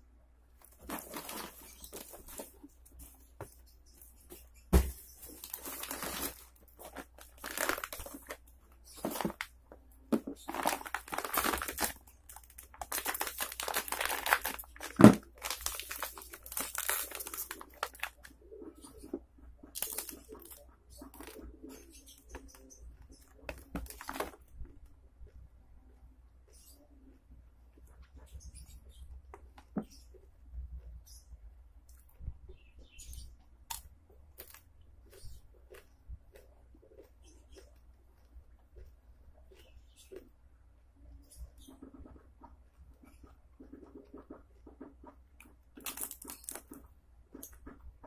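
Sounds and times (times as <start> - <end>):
plastic packaging crinkling: 0.6 - 2.7, 5.2 - 18.3, 19.7 - 21.4, 23.5 - 24.4, 45.8 - 46.8
bag tearing: 5.4 - 8.3, 10.5 - 12.0, 12.8 - 18.1.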